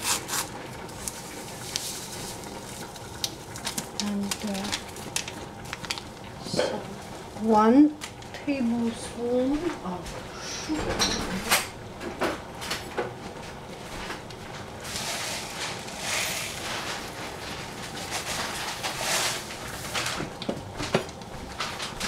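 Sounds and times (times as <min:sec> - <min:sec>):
paper bag rustling and crinkling: 0:00.0 - 0:07.0, 0:14.6 - 0:20.3.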